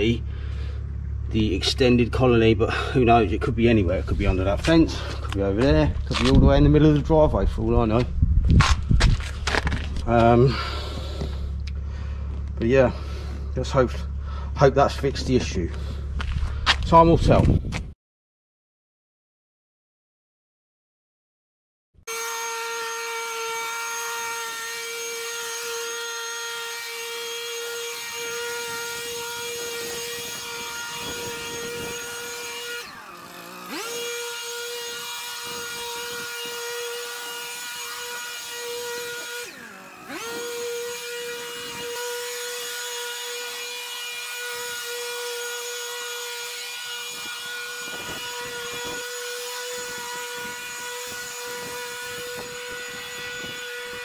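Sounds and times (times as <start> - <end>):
pressure washer whining: 22.1 - 54.0.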